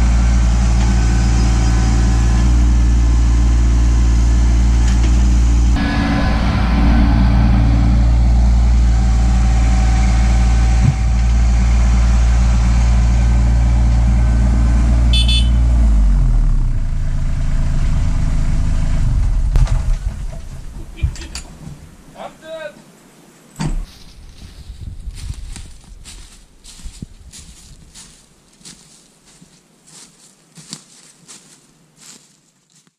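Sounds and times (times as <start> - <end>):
tractor diesel engine running: 0.0 - 21.0
log thud: 19.2 - 21.9.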